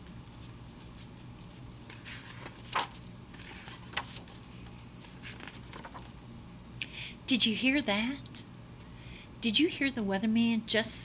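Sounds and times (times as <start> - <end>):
steady low hum: 0.0 - 11.0
book pages rustling: 0.3 - 6.2
sharp page flicks: 1.4 - 4.4.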